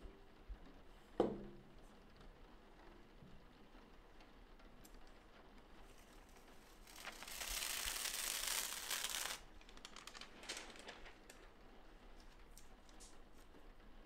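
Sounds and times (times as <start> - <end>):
paper sheet crinkling: 5.8 - 13.6
light paper rustles: 5.8 - 13.7.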